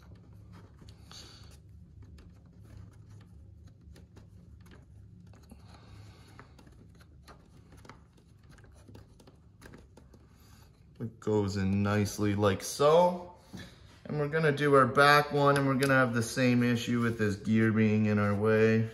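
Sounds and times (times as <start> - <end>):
scratchy rubs: 0.0 - 13.0.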